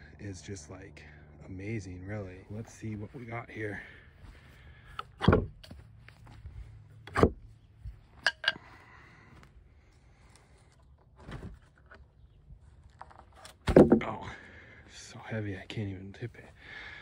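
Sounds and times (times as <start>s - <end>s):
footsteps on sawdust and grass: 2.4s - 4.9s, 5.6s - 6.9s
loud thumps: 5.1s - 5.7s, 13.6s - 14.2s.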